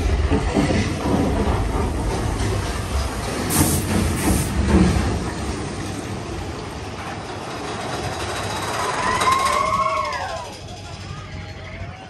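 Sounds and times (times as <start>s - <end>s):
roller coaster rumbling on track: 0.0s - 12.0s
burst of hiss: 3.5s - 4.6s.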